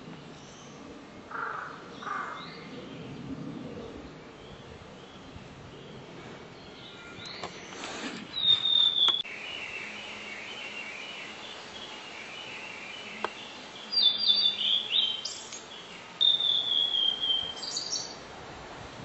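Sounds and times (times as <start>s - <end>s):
bird singing whistled notes: 6.6s - 18.2s.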